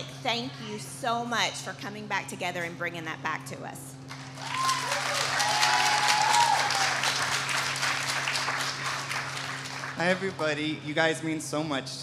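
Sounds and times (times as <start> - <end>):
audience applauding: 4.2 - 10.7.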